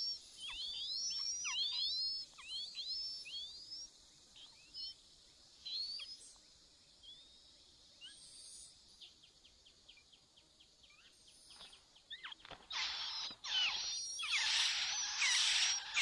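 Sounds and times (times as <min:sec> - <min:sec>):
nestlings cheeping: 0:12.1 - 0:16.0.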